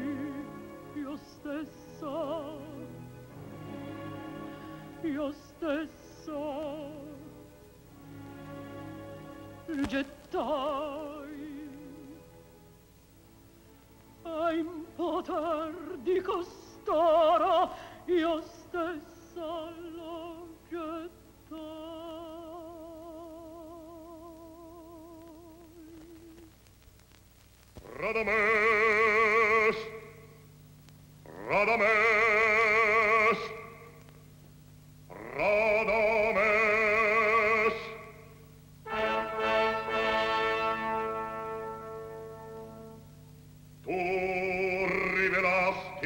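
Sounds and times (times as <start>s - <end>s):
operatic woman singing: 0.0s - 2.9s, 5.0s - 7.4s, 9.7s - 12.2s, 14.2s - 26.5s
soft orchestral accompaniment: 0.0s - 12.8s, 38.8s - 43.2s.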